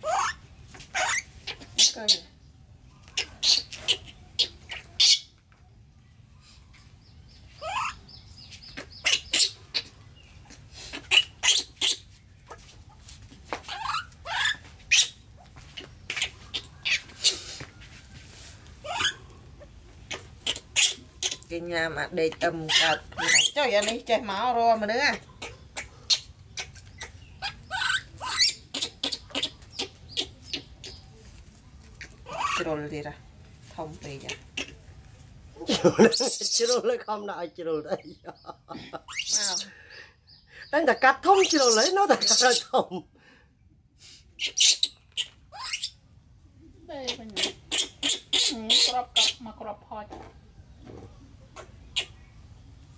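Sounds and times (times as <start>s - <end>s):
young animal squeaking: 0.0s - 2.4s, 3.0s - 5.4s, 7.6s - 12.7s, 13.6s - 17.6s, 18.8s - 21.7s, 22.3s - 31.2s, 31.9s - 32.9s, 34.1s - 34.9s, 36.0s - 37.1s, 38.4s - 39.7s, 40.3s - 42.8s, 44.4s - 46.0s, 46.9s - 49.9s, 51.5s - 52.3s.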